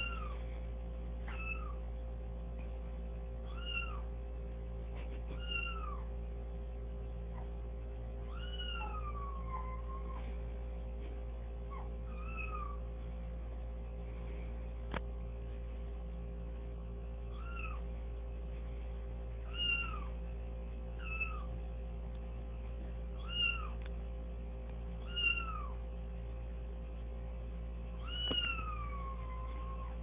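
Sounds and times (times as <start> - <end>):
steady low hum: 0.0 - 30.0
recorded cat meows: 8.3 - 9.8, 28.0 - 30.0.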